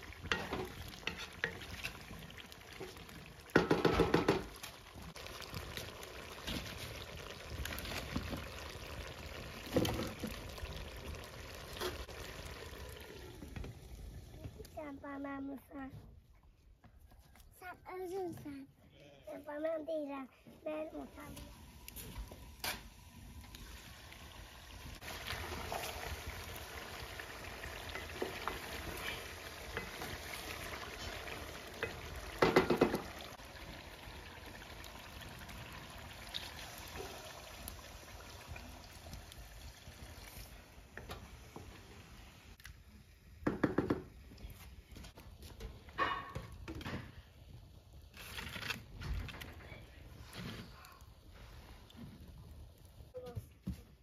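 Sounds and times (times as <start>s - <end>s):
liquid pouring into metal pot: 0.0s - 13.9s
firewood knocking in stove: 3.5s - 4.6s, 32.4s - 33.1s.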